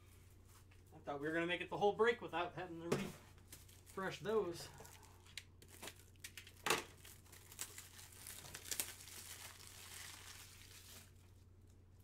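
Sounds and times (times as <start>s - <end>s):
plastic packaging crinkling and tearing: 3.5s - 11.5s.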